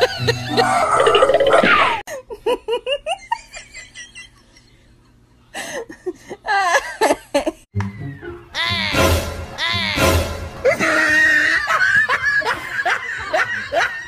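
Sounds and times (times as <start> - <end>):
young woman laughing: 2.1 - 4.6, 5.7 - 7.7, 10.6 - 14.0
loud music: 8.3 - 10.9.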